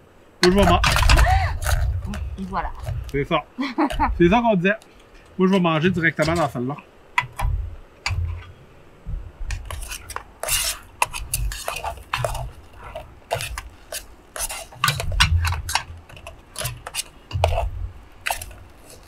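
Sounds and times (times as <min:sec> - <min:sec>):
utensil scraping metal pans: 0:00.4 - 0:04.4, 0:05.2 - 0:08.6, 0:09.5 - 0:19.0
dull thuds: 0:07.2 - 0:13.8, 0:14.7 - 0:18.8.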